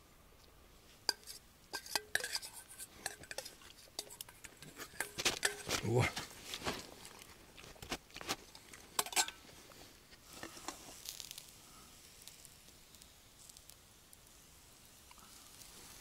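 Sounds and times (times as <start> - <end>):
spoon clinking on metal bowl: 1.1 - 5.7, 9.0 - 9.4.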